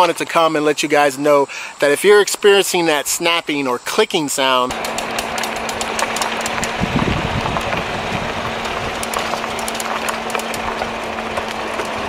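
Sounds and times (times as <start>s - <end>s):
vehicle engine idling: 4.7s - 12.0s.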